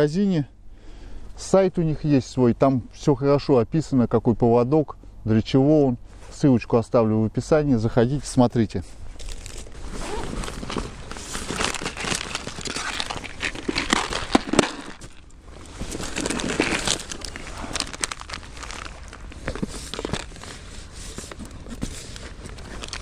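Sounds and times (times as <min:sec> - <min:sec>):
backpack fabric rustling: 0:08.9 - 0:23.0
plastic packaging crinkling: 0:09.1 - 0:23.0.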